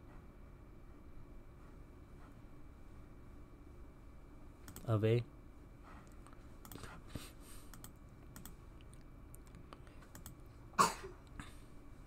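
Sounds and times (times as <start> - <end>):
computer mouse clicks: 4.6 - 4.9, 6.1 - 7.0, 7.7 - 10.4.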